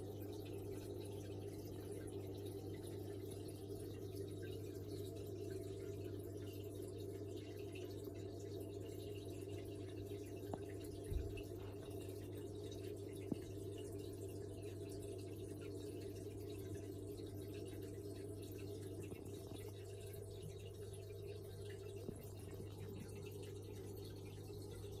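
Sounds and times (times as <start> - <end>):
water bubbling: 10.3 - 25.0.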